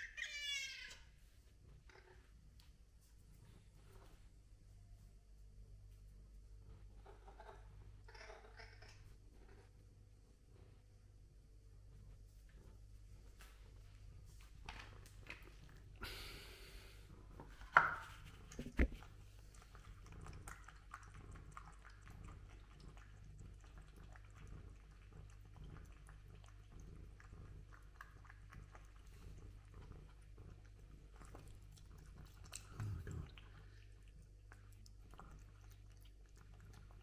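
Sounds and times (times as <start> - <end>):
cat chewing and lapping: 10.4 - 37.0
bowl knocking on tile floor: 17.7 - 19.0.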